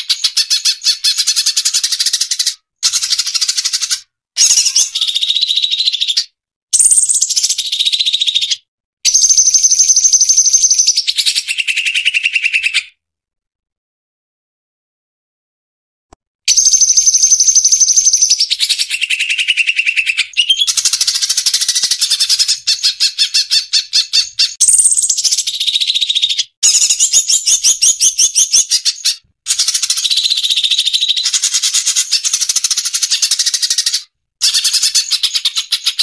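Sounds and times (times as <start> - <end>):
songbirds trilling: 16.5 - 36.0.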